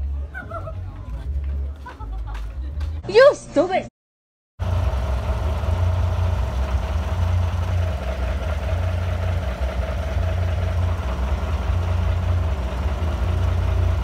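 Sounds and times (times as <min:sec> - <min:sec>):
truck engine idling: 0:04.6 - 0:14.0.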